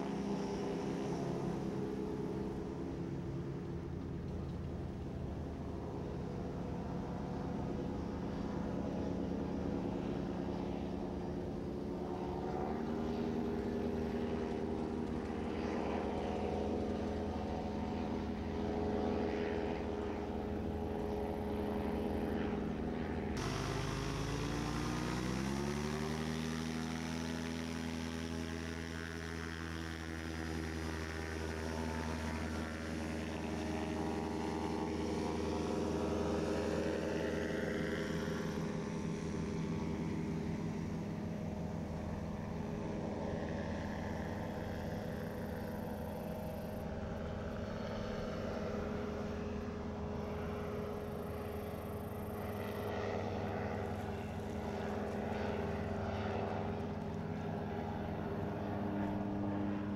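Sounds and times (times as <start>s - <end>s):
model plane engine and propeller: 0.0s - 59.9s.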